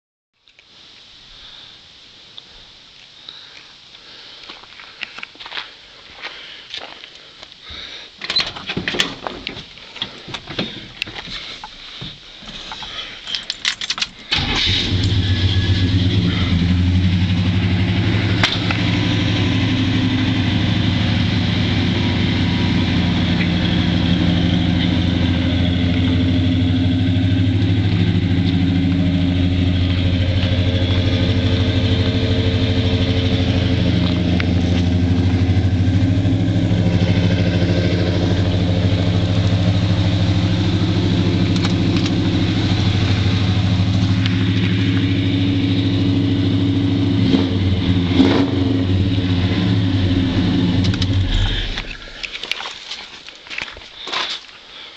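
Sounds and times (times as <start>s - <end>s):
pickup truck engine idling: 14.3s - 48.1s.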